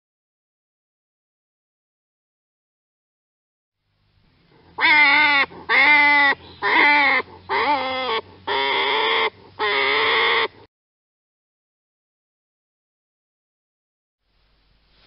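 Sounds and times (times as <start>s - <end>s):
animal calling: 4.6s - 10.7s.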